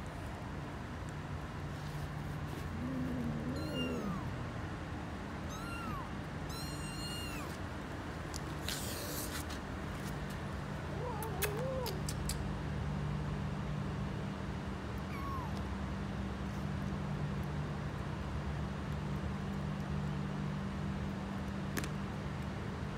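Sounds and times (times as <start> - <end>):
kittens mewing: 2.5 - 4.5, 5.4 - 7.6, 10.9 - 12.4, 15.1 - 15.6
mother cat meowing: 2.8 - 4.4, 5.5 - 7.6, 15.1 - 15.6.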